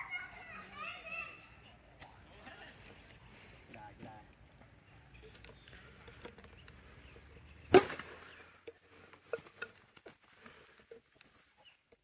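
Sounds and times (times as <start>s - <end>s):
bat hitting plastic ball: 7.7s - 8.8s.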